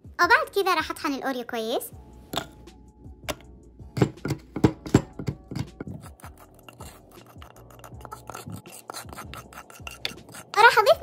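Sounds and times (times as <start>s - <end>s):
pestle grinding taps and scrapes: 3.2s - 10.6s
pestle pounding in wooden mortar: 3.3s - 10.6s.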